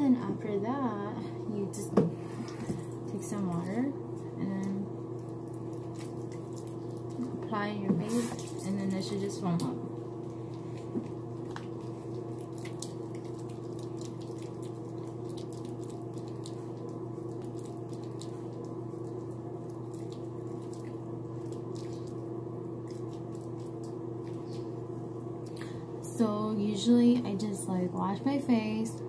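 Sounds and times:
water dripping in sink: 4.6 - 25.8
wet hands squelching: 5.2 - 7.4, 8.0 - 25.7.

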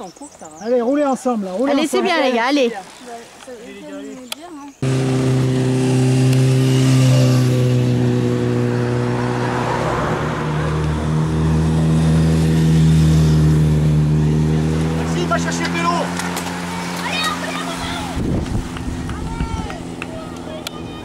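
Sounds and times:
vehicle engine running: 4.8 - 21.0.

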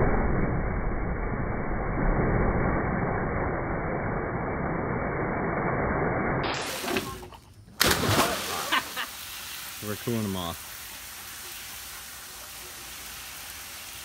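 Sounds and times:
muffled low water rush: 6.3 - 14.0.

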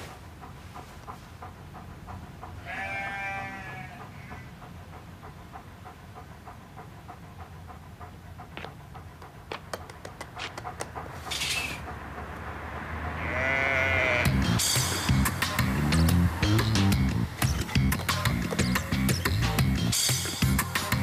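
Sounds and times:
sheep bleating: 2.6 - 4.3, 13.2 - 14.6.

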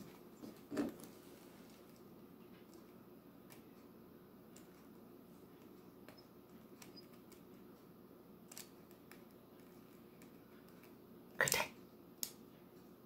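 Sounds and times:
person's voice: 11.4 - 11.8.

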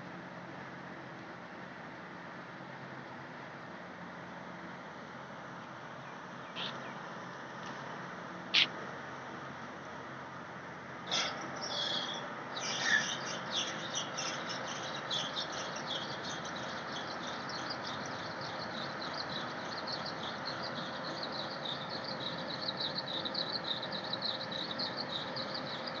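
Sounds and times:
steady background noise: 0.0 - 26.0
many birds chirping: 6.0 - 7.2, 8.5 - 8.7, 11.1 - 26.0.

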